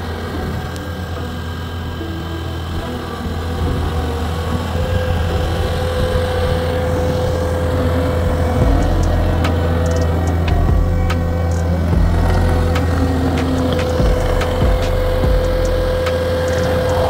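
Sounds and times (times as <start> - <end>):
steady whine: 0.0 - 17.0
track loader diesel engine: 0.0 - 17.0
sharp clicks: 8.6 - 17.0.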